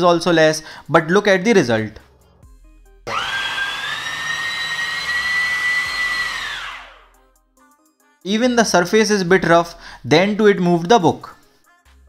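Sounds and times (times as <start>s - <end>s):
electric fan rushing whine: 3.1s - 7.0s.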